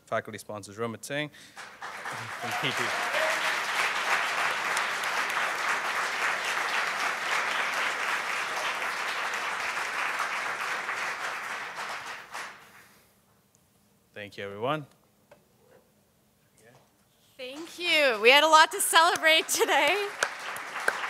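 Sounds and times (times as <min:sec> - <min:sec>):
audience applauding: 0:01.6 - 0:12.9, 0:17.4 - 0:21.0.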